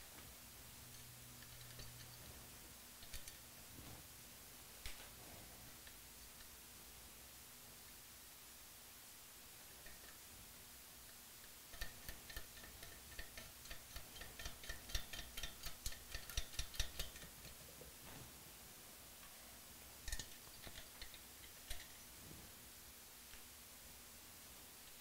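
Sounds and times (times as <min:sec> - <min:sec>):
nut and washer clicking on stud: 0:11.7 - 0:17.6.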